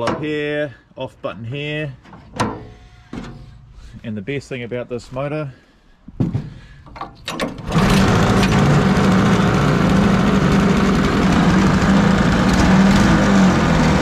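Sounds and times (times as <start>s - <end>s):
small engine running: 7.7s - 14.0s.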